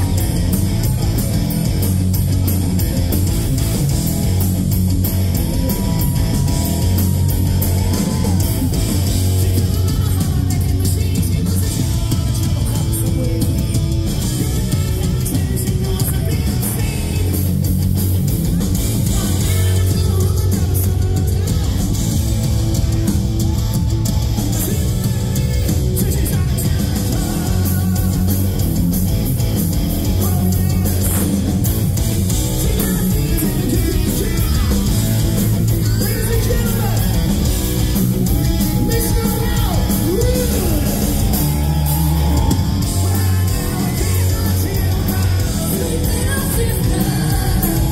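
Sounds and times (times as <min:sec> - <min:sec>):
distorted electric guitars: 0:00.0 - 0:47.9
drum kit: 0:00.0 - 0:47.9
man singing: 0:05.5 - 0:17.6, 0:18.4 - 0:22.2, 0:24.4 - 0:28.6, 0:30.0 - 0:31.5, 0:32.5 - 0:37.5, 0:38.3 - 0:47.9.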